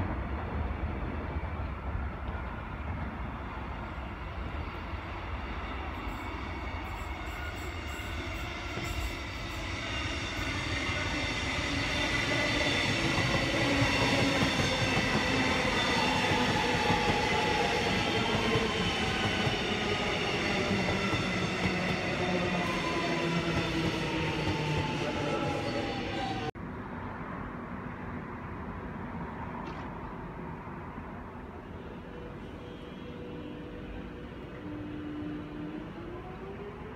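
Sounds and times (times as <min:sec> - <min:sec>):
train rumbling: 0:00.0 - 0:26.6.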